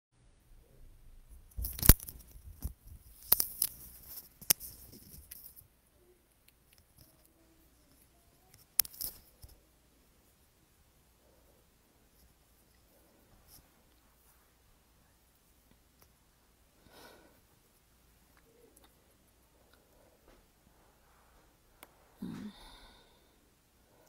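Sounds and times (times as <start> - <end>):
microphone handling clicks and rustles: 1.3 - 5.7.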